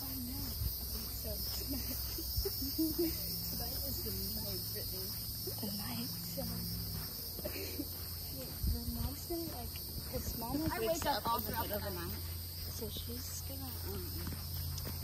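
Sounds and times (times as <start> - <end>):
insect chorus buzzing: 0.0 - 15.0.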